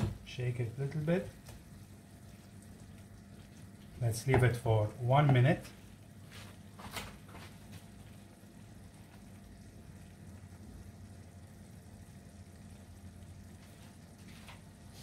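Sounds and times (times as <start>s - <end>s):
food simmering in a frying pan: 0.0s - 15.0s
steady low hum: 0.0s - 15.0s.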